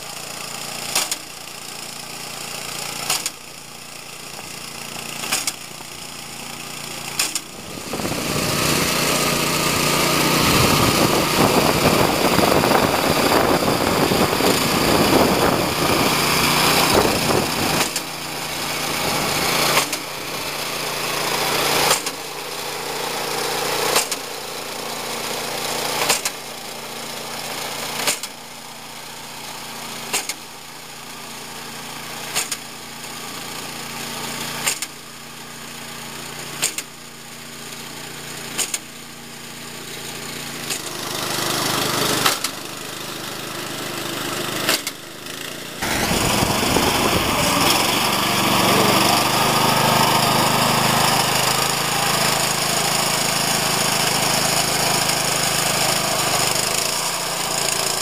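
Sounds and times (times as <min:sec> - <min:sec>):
small petrol engine running: 0:00.0 - 0:58.0
sharp clack of turf cutting: 0:00.8 - 0:01.4, 0:02.8 - 0:03.5, 0:04.3 - 0:06.0, 0:06.8 - 0:22.4, 0:23.3 - 0:24.4, 0:25.8 - 0:26.6, 0:27.9 - 0:28.4, 0:30.0 - 0:30.5, 0:32.3 - 0:33.3, 0:34.4 - 0:35.0, 0:36.3 - 0:37.0, 0:37.7 - 0:39.0, 0:39.9 - 0:58.0.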